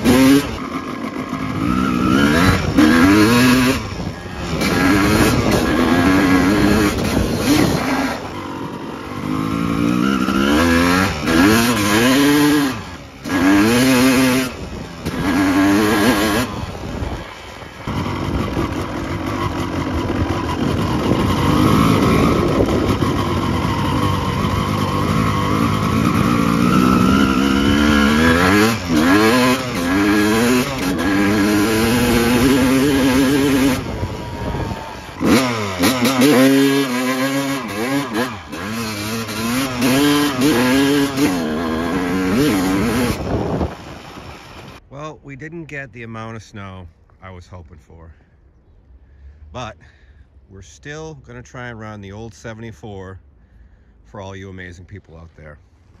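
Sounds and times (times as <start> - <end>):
snowmobile engine revving: 0.0 - 48.2.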